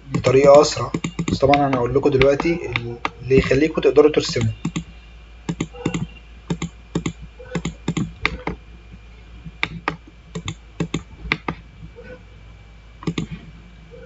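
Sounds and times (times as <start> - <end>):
computer keyboard keys clicking: 0.1 - 1.5, 4.2 - 4.9, 5.5 - 8.6, 9.6 - 11.6, 13.0 - 13.3
mouse buttons clicking: 0.1 - 4.9, 5.5 - 8.6, 9.6 - 11.6, 13.0 - 13.4.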